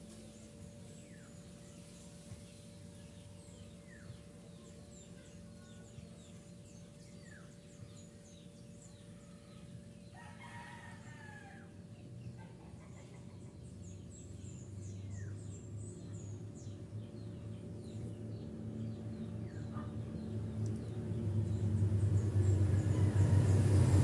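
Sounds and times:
small birds chirping: 0.0s - 23.7s
low steady hum: 0.0s - 24.0s
rooster crowing: 10.1s - 11.8s, 22.8s - 24.0s.

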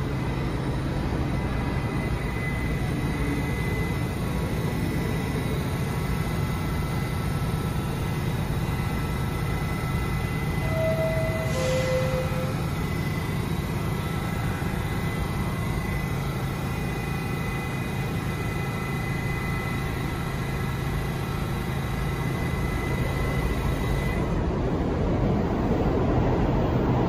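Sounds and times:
high-pitched equipment whine: 0.0s - 24.5s
subway car low hum: 0.0s - 27.0s.

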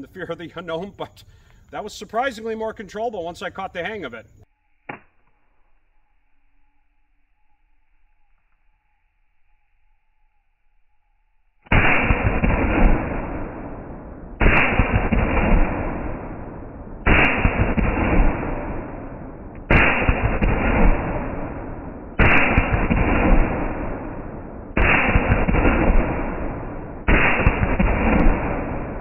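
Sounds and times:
slowed shotgun booms: 11.7s - 29.0s.

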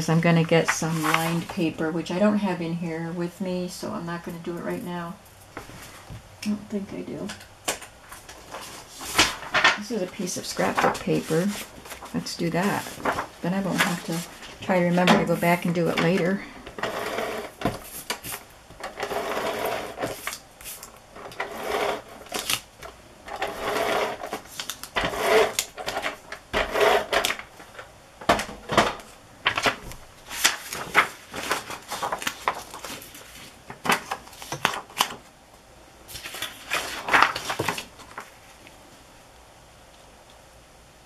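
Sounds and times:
paper being shuffled: 0.6s - 1.5s, 10.3s - 16.3s, 29.4s - 35.3s, 36.1s - 38.6s.

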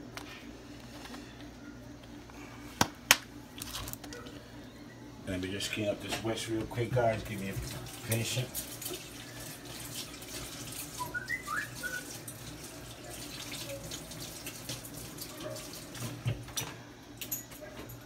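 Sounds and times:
water running from tap: 6.7s - 16.5s.

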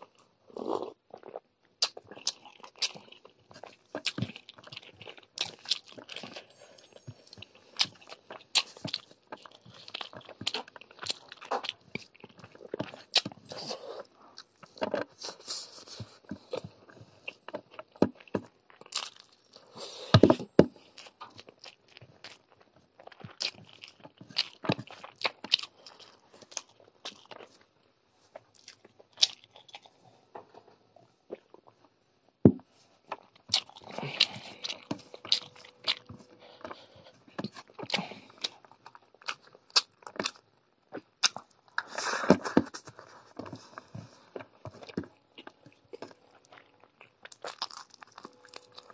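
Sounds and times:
wet chewing and lip smacking: 0.2s - 13.7s, 20.9s - 27.6s, 33.1s - 48.9s.

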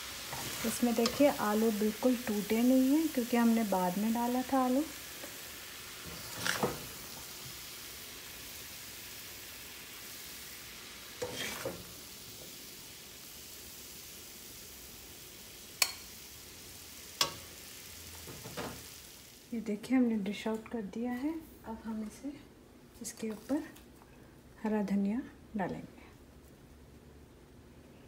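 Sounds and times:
faint sizzle: 0.0s - 28.0s
spatula scraping a pan: 6.0s - 7.0s, 11.2s - 11.8s.

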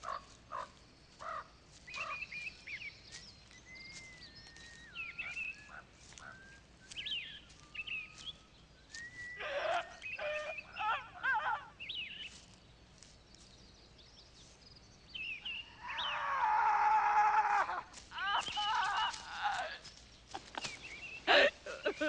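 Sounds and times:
birds calling: 0.0s - 22.0s
woman short cries: 9.4s - 11.8s, 17.4s - 19.9s, 21.3s - 22.0s
woman crying out in pain: 17.3s - 19.9s.

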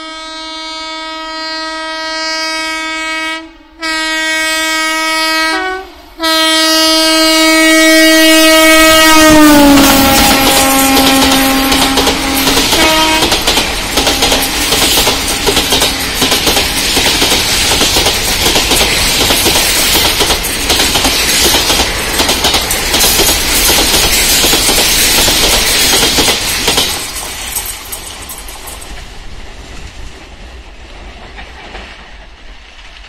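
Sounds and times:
train wheels clattering over rail joints: 9.6s - 33.0s.

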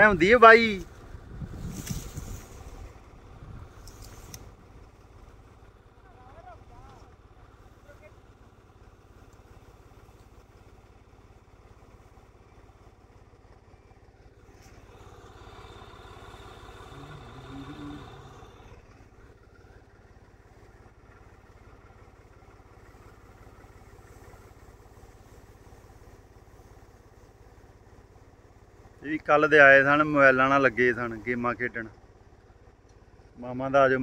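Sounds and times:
tractor engine running: 0.0s - 34.0s.

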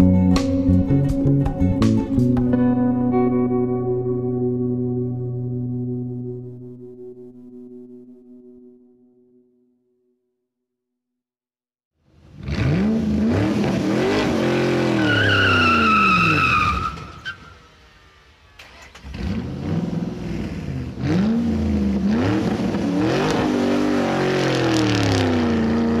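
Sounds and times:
engine revving: 12.1s - 26.0s
high squealing tone: 14.8s - 18.2s.

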